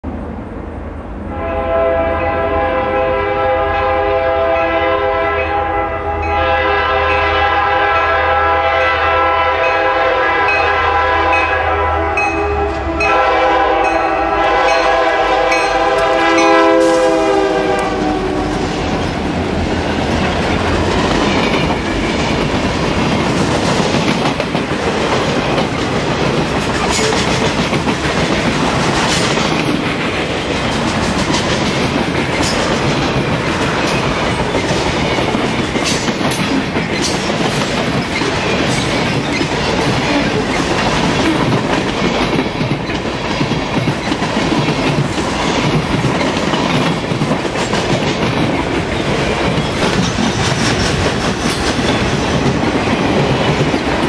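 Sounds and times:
locomotive air horn blasts: 1.3 - 18.9
locomotive rumble: 6.2 - 54.0
wheels clacking over rail joints: 17.7 - 54.0.

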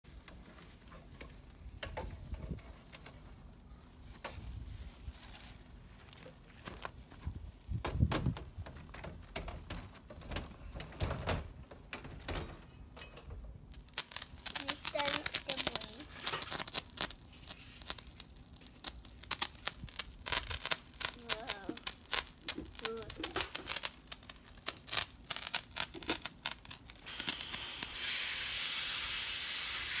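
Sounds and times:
firework hissing: 13.6 - 30.0
sparkler fizzing and crackling: 13.6 - 30.0.

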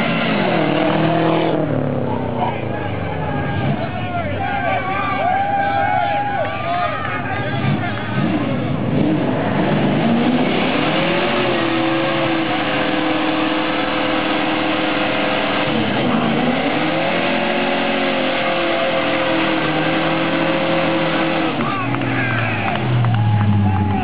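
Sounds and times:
car engine revving hard: 0.0 - 2.2, 7.5 - 24.0.

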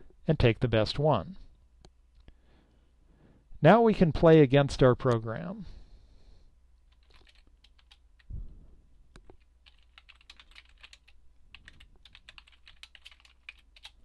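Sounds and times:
faint keyboard typing: 6.8 - 8.3, 9.1 - 14.0.

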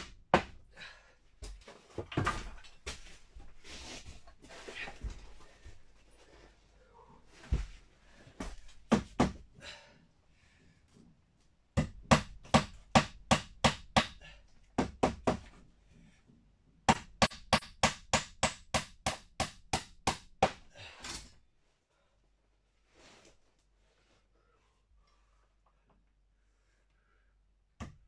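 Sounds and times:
hammer striking wood: 0.0 - 0.6, 8.9 - 9.4, 11.8 - 14.2, 14.8 - 15.5, 16.9 - 20.6.

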